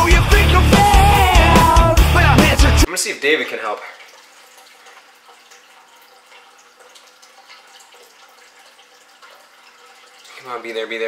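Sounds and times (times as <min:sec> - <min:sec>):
water trickling and dripping: 0:02.8 - 0:11.0.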